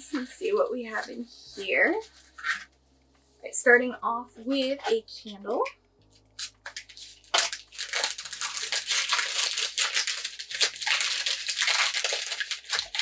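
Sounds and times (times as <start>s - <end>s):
paper crinkling and rustling: 6.1s - 13.0s.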